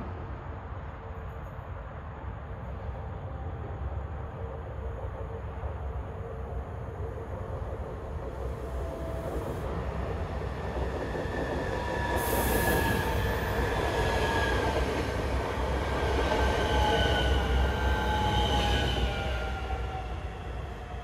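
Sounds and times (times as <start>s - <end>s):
train whines and squeals: 0.0s - 21.0s
train wheels rumbling: 5.2s - 21.0s.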